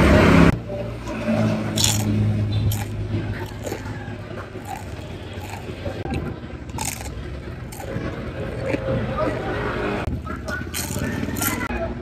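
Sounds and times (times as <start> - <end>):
chips being bitten and chewed: 1.7 - 9.4, 10.1 - 11.7.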